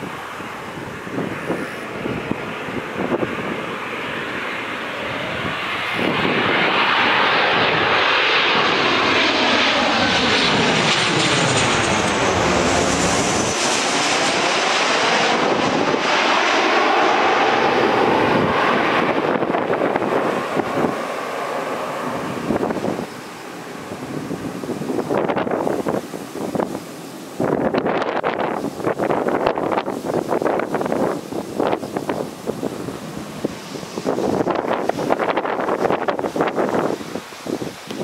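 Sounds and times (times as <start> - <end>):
jet airliner passing overhead: 0.0 - 38.0.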